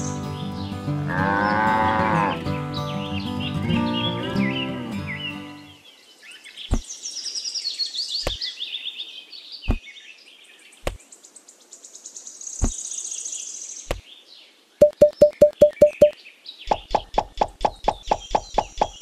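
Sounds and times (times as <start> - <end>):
birds chirping and trilling: 0.0 - 19.0.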